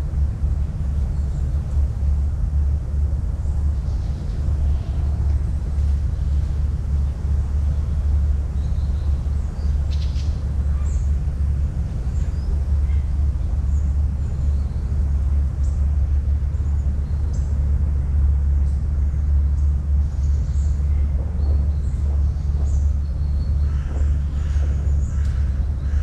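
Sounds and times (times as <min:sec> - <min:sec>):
steady low rumble: 0:00.0 - 0:26.0
small birds chirping: 0:03.4 - 0:17.6, 0:18.6 - 0:26.0.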